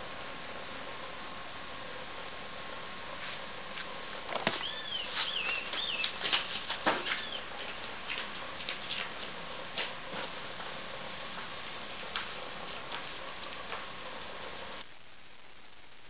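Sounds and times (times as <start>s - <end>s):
footsteps: 3.2s - 13.9s
warbling bird chirps: 4.5s - 6.2s, 7.2s - 7.5s.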